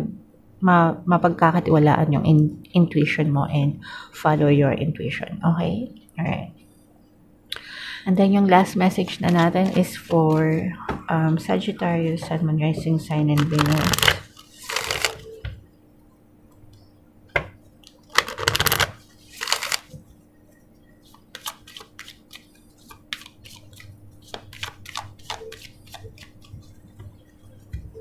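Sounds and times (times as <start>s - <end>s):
cards clicking and tapping: 13.4s - 15.2s, 18.2s - 19.9s, 21.1s - 26.6s
cards riffling: 13.4s - 15.2s, 18.1s - 19.9s.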